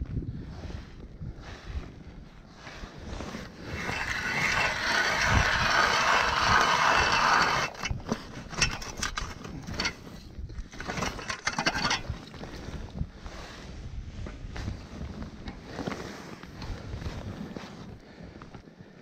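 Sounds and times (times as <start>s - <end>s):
ice auger scraping into ice: 3.0s - 13.6s.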